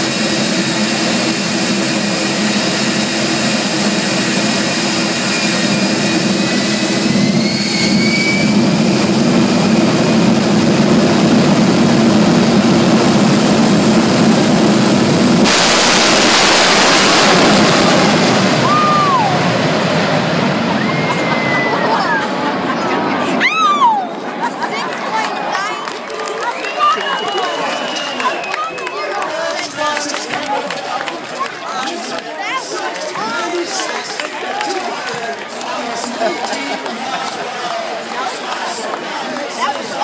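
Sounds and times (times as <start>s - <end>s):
jet engine whining and roaring: 0.0s - 31.3s.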